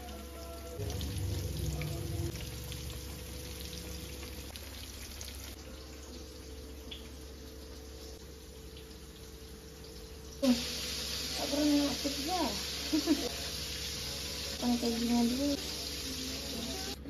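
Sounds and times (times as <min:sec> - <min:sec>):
oil sizzling and crackling: 0:00.0 - 0:17.0
low rumble: 0:00.8 - 0:03.3.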